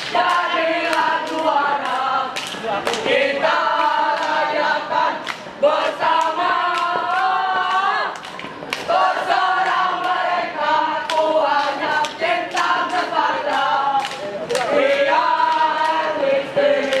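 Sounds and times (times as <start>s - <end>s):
children singing cheer song in chorus: 3.1s - 8.2s, 8.9s - 14.1s.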